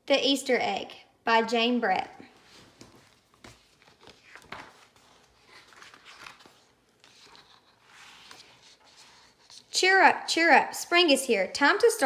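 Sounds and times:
paper pages rustling: 0:02.4 - 0:09.8.

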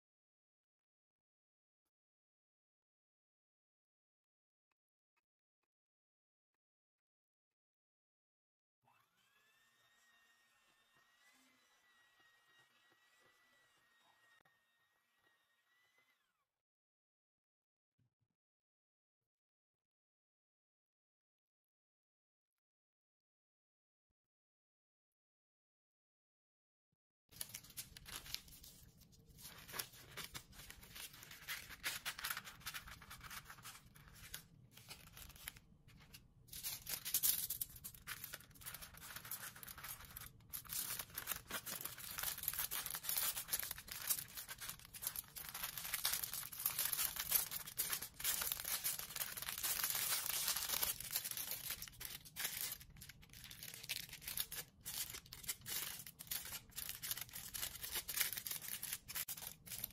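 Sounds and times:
aluminium foil crinkling: 0:27.4 - 0:59.9.

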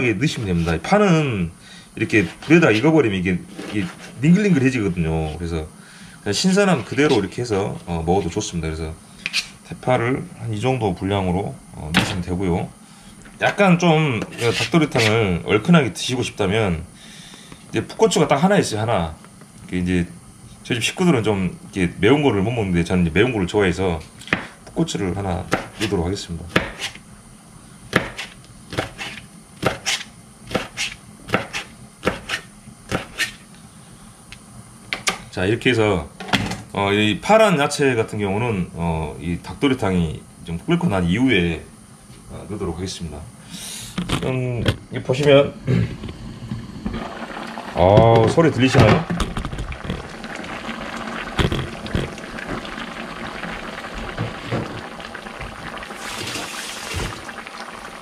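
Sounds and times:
loud hiss: 0:43.4 - 0:44.0, 0:55.9 - 0:57.4
stew bubbling and sizzling in a pan: 0:46.1 - 0:58.0.

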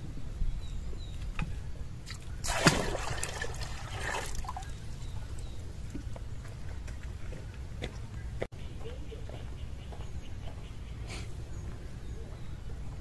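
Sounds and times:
water trickling and splashing: 0:01.4 - 0:06.2.

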